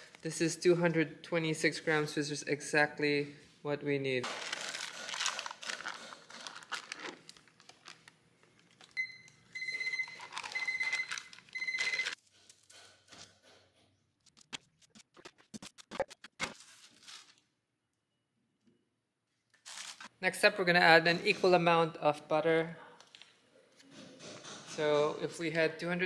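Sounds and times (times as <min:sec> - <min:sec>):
foil wrapper crinkling: 0:04.2 - 0:09.0, 0:10.0 - 0:12.2, 0:16.4 - 0:17.5, 0:19.5 - 0:20.1.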